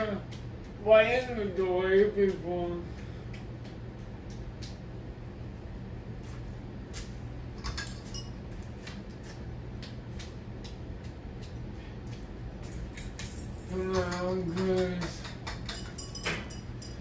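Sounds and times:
ceiling fan humming: 0.0 - 17.0
light clicks and clinks: 7.7 - 8.4, 13.0 - 17.0.

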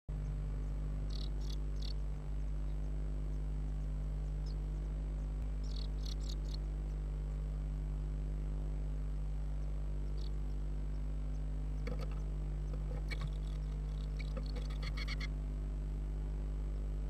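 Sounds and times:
steady low hum: 0.1 - 17.0
chicks squeaking: 1.1 - 2.0, 5.6 - 6.7, 10.1 - 10.4, 11.8 - 15.3.

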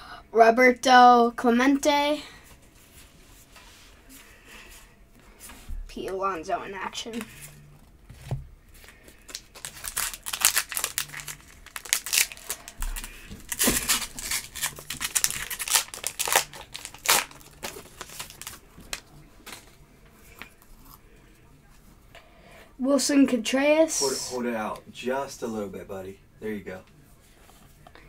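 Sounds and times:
wrapper crinkling and tearing: 9.1 - 19.6.

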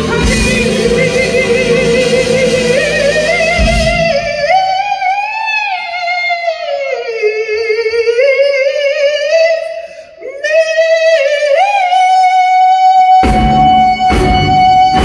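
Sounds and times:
band with drums and electric guitar: 0.0 - 5.3, 13.1 - 15.0
woman singing: 0.0 - 12.3.

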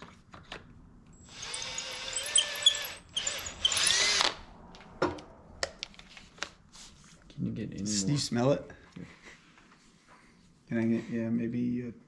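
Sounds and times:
power drill boring into fiberglass: 1.2 - 4.3.

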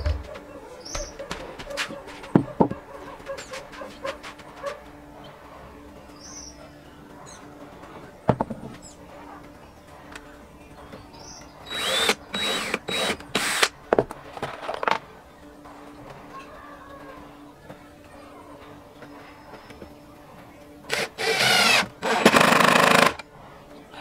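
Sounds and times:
cordless drill whining: 11.7 - 13.7, 20.9 - 23.2.

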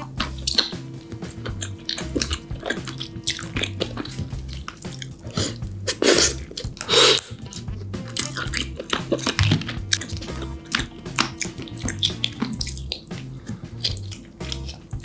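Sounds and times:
crab shell crackling: 0.0 - 15.0
wet clicks of meat: 12.7 - 15.0.

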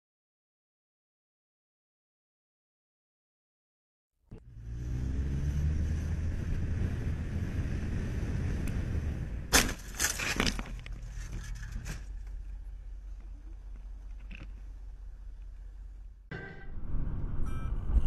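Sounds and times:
motorcycle engine revving: 4.3 - 9.3
crash impacts and clatter: 9.5 - 12.6.

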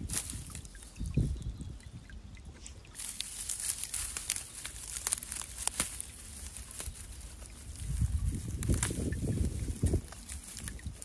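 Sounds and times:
dry ferns rustling and crackling: 0.0 - 1.3, 2.6 - 11.0.

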